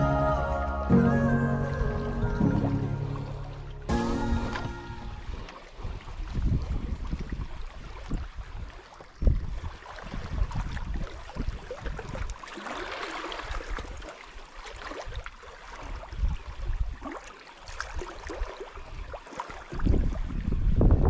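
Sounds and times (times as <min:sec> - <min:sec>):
wind rumbling on microphone: 0:04.2 - 0:12.5, 0:14.8 - 0:17.2, 0:17.8 - 0:21.0.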